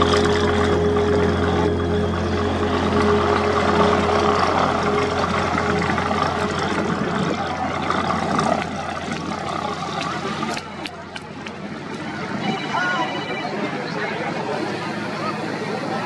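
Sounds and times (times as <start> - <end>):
aircraft piston engine idling: 0.0 - 11.8
broad rush of noise: 0.0 - 16.0.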